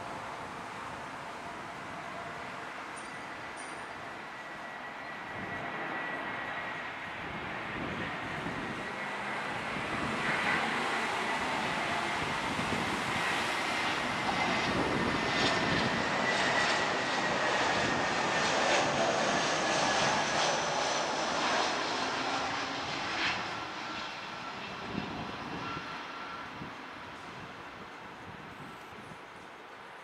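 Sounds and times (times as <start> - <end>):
jet engines rumbling and whining: 0.0 - 30.0.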